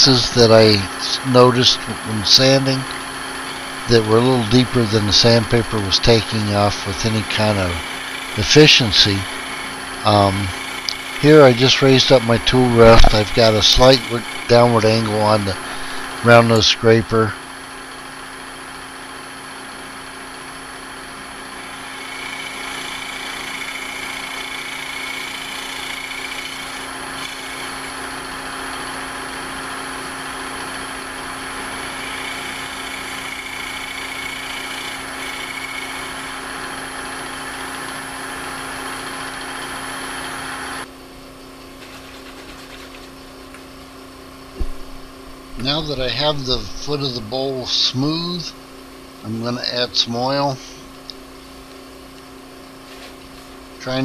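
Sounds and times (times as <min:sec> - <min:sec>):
wood lathe humming and whining: 0:00.0 - 0:41.0.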